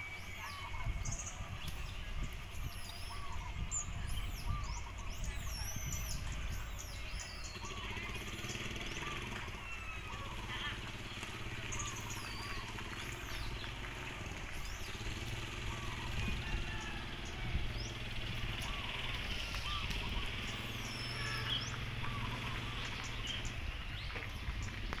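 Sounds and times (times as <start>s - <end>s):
birds chirping: 0.0s - 25.0s
low engine-like rumble: 0.0s - 25.0s.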